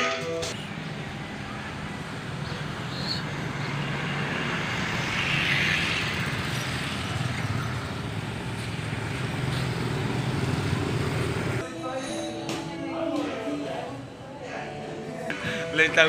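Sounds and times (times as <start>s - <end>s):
road noise: 0.0s - 12.2s
motorbikes passing: 0.4s - 11.6s
van passing: 0.5s - 11.6s.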